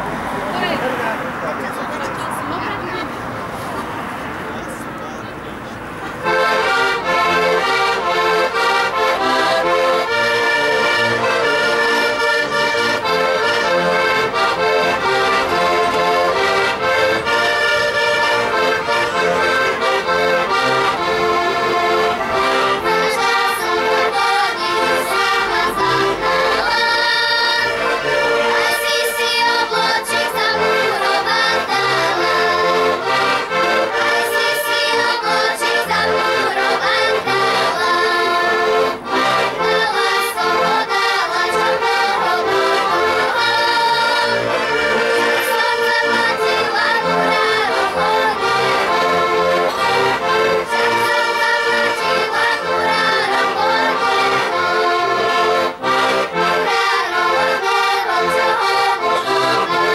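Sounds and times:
accordions playing folk tune: 0.0s - 59.9s.

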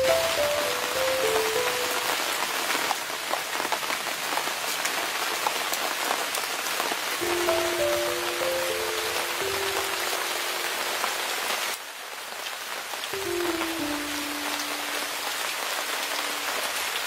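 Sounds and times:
background music melody: 0.0s - 2.5s, 7.2s - 11.3s, 13.2s - 17.0s.

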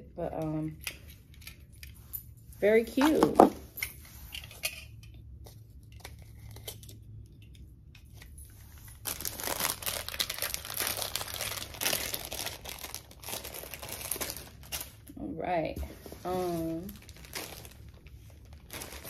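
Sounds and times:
plastic bag crinkling: 8.6s - 15.1s, 15.9s - 19.0s.

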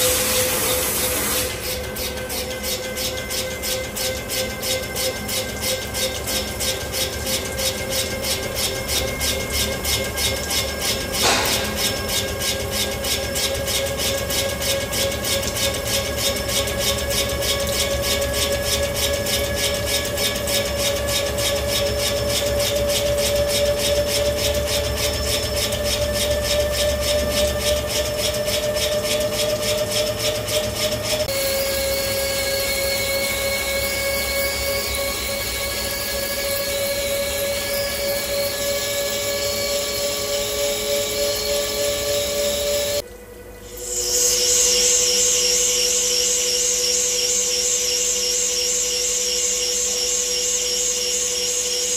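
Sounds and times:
lathe machining noise: 0.0s - 51.9s
sharp click: 11.2s - 12.0s.

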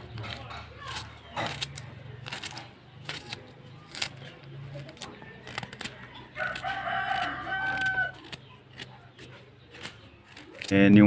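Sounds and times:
rooster crowing: 5.9s - 8.4s.

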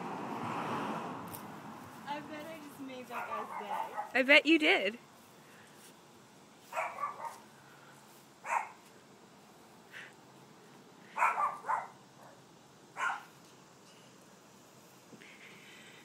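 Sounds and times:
dog barking: 3.2s - 4.2s, 6.7s - 7.4s, 8.4s - 8.8s, 11.2s - 12.4s, 13.0s - 13.3s.

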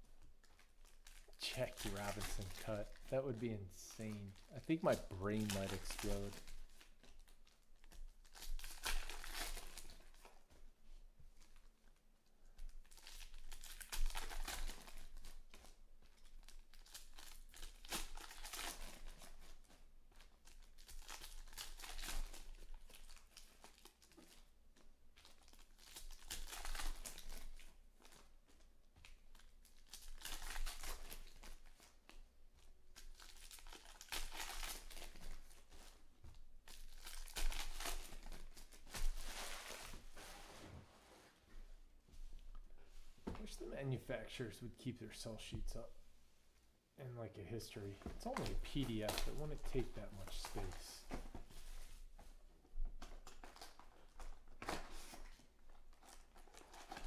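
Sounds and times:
rustling of cards: 0.2s - 12.0s, 12.6s - 43.7s, 47.6s - 57.0s
foil packs crinkling and tearing: 0.5s - 10.3s, 12.9s - 15.6s, 16.2s - 19.6s, 20.4s - 24.4s, 25.2s - 28.2s, 29.3s - 32.2s, 33.0s - 36.0s, 36.7s - 40.1s, 48.2s - 51.1s, 53.0s - 57.0s.

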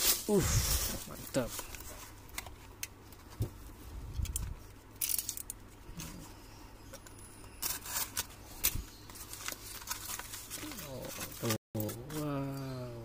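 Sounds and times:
package handling: 7.6s - 12.2s.

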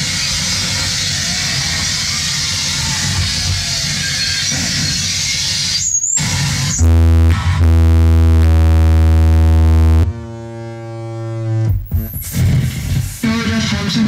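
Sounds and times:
harsh electronic noise: 0.0s - 14.0s
quieter buzzing tone: 6.2s - 12.1s
loud buzzing low drone: 6.2s - 13.2s.

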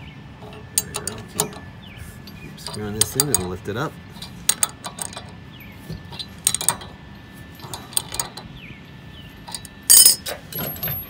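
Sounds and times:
wrench clicking on metal: 0.4s - 1.7s, 2.6s - 3.6s, 4.2s - 5.4s, 6.2s - 6.9s, 7.6s - 8.5s, 9.5s - 10.2s
metallic clatter: 0.4s - 8.7s, 9.4s - 11.0s.

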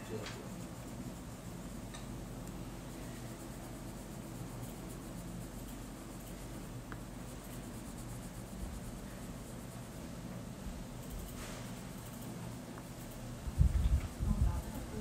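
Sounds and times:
steady low hum: 0.0s - 15.0s
pencil scribbling on paper: 2.9s - 10.3s.

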